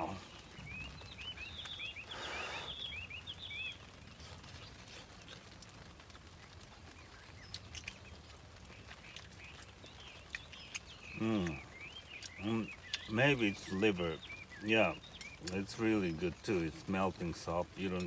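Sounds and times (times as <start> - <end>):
small bird chirping: 0.0 - 18.0.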